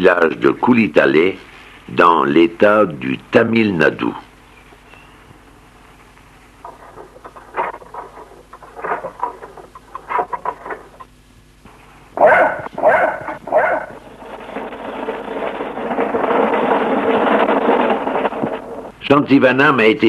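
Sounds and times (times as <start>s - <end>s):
steady noise: 0.0s - 20.0s
dog barking: 12.2s - 14.0s.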